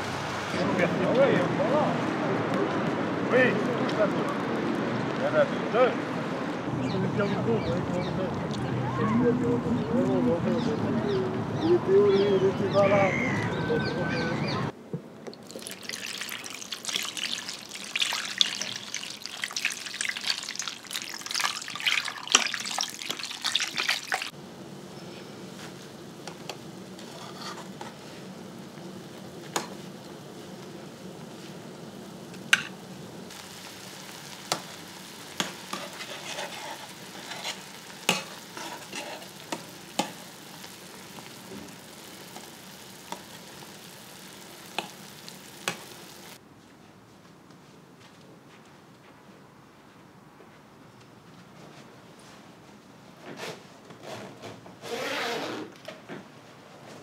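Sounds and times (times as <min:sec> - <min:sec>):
pot crackling and sizzling: 0:15.3 - 0:46.4
pot simmering: 0:15.3 - 0:46.4.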